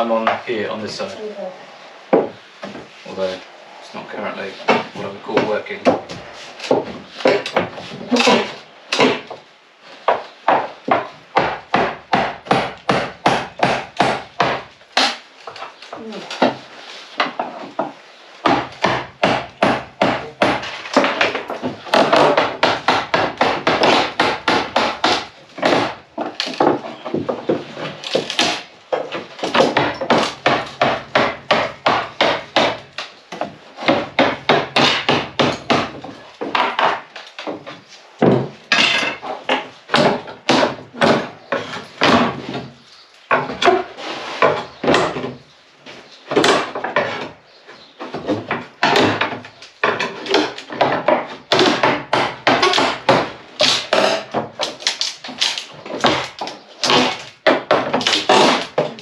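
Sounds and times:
wooden laths cracking and splintering: 17.3 - 44.0, 48.2 - 59.0.

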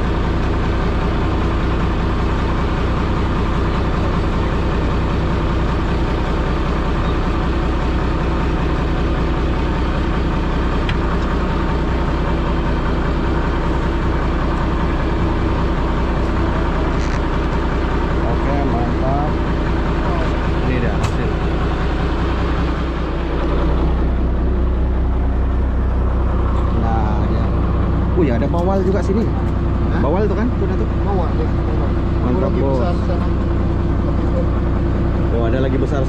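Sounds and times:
boat engine droning: 0.0 - 36.0.

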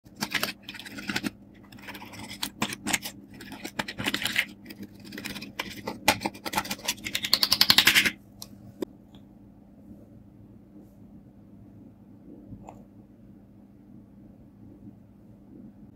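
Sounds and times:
fast run of clicks: 0.1 - 8.2
metal tool scraping eyeshadow: 0.2 - 8.2.

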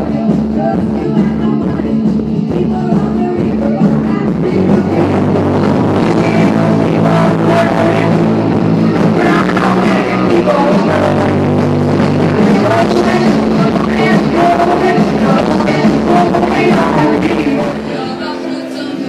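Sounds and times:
live rock band playing: 0.0 - 19.0
person singing: 0.0 - 19.0.

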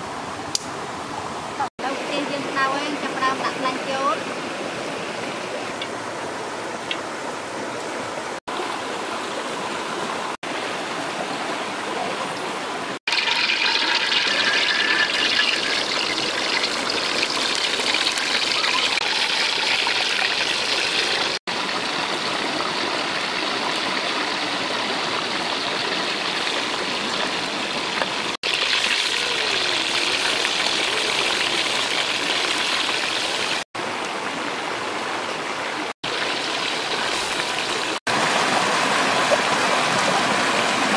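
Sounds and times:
stream rushing: 0.0 - 40.9
frogs frying in hot oil: 13.1 - 33.7, 36.0 - 38.0.

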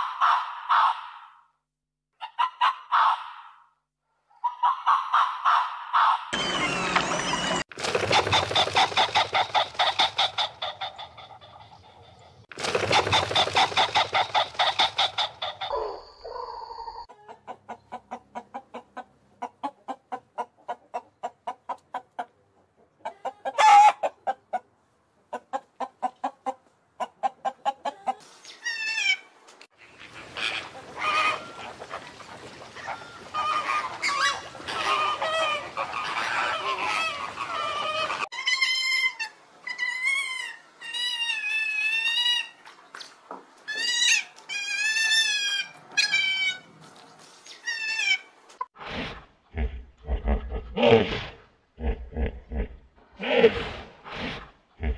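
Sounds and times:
swamphen clucking: 4.4 - 24.7, 29.8 - 38.8.

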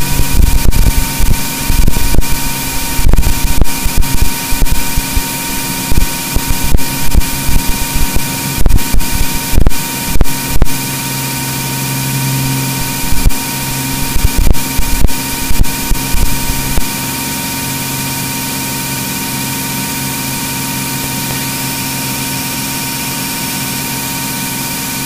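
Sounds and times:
crackles and thumps: 0.0 - 10.8, 12.4 - 17.0
aircraft engine drone with whine: 0.0 - 25.0.

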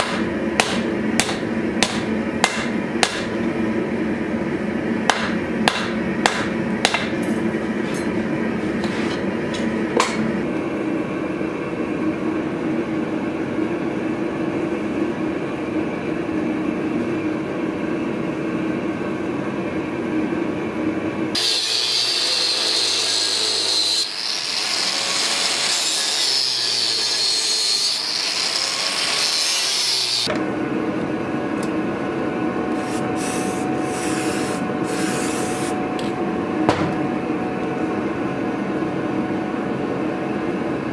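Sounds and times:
workshop hum: 0.0 - 40.9
steel being filed: 21.4 - 30.3, 32.8 - 35.8.

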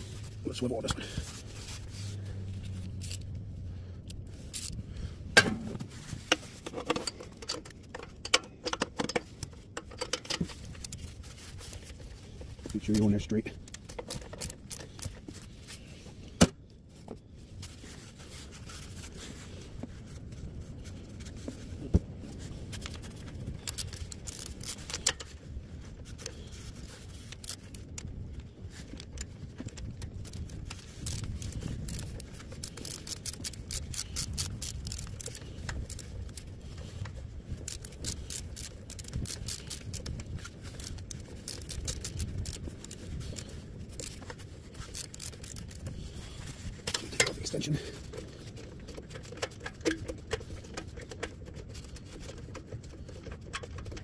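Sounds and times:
metallic clicks and scrapes: 0.0 - 54.0
ratchet clicking: 2.7 - 3.3, 4.0 - 4.8, 22.8 - 25.3, 26.1 - 27.9, 28.7 - 47.3.

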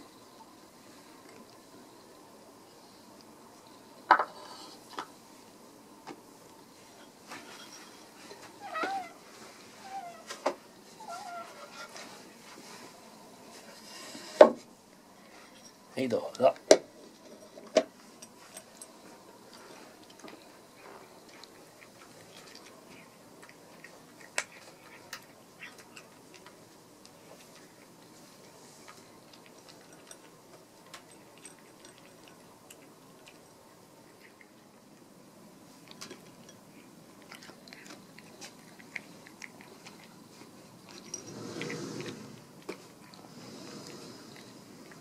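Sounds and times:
cat crunching dry kibble: 18.3 - 45.0.

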